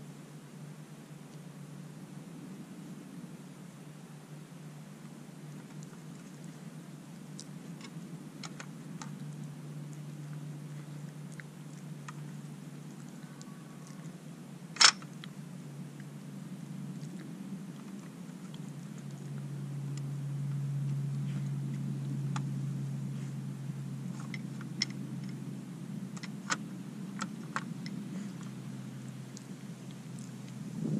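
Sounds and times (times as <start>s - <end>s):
steady low hum: 0.0s - 30.9s.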